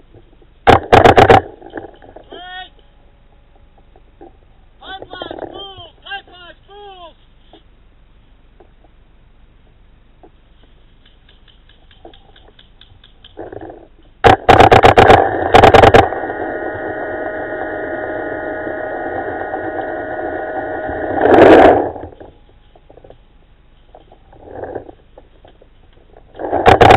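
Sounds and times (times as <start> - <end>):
steady pitched tone: 14.2 - 23.4.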